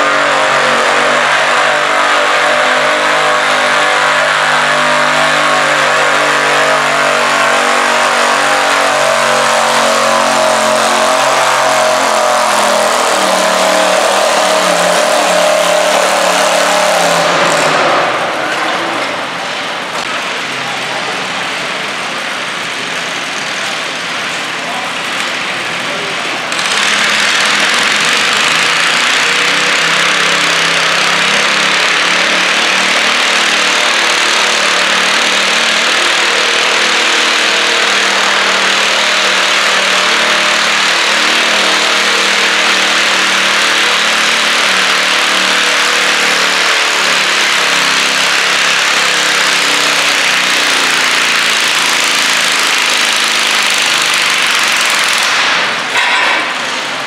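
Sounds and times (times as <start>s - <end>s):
tractor engine running under load: 0.0s - 57.0s.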